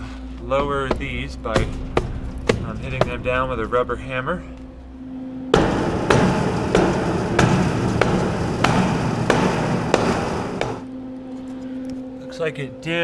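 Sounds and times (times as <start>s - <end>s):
rubber mallet hammering steel: 0.6s - 3.6s, 5.6s - 10.8s
loud continuous noise: 5.5s - 10.9s.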